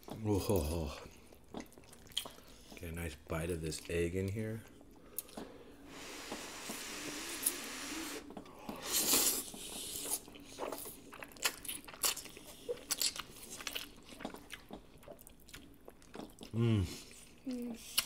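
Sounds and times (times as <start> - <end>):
wet chewing and lip smacks: 1.2 - 2.9, 9.1 - 16.6, 17.8 - 18.0.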